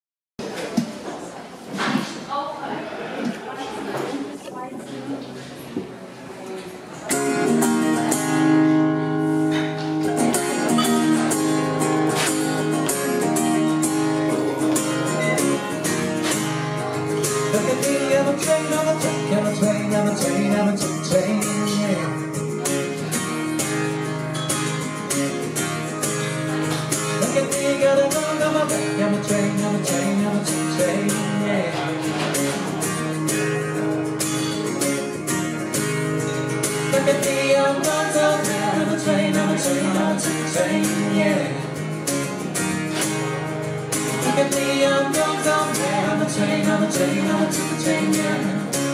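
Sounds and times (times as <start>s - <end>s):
strummed guitar: 6.9s - 48.9s
man singing: 16.8s - 22.9s, 27.0s - 33.1s, 36.7s - 42.0s, 44.0s - 48.9s.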